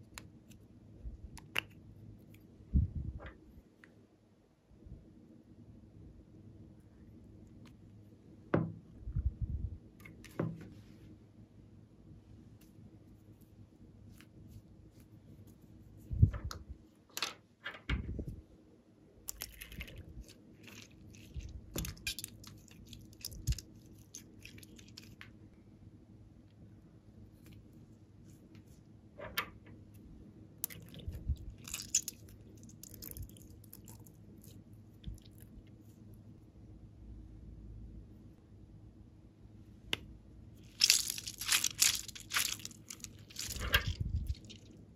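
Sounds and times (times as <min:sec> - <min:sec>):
squeezed slime wet crackles: 0:30.6 - 0:35.5, 0:40.7 - 0:44.7.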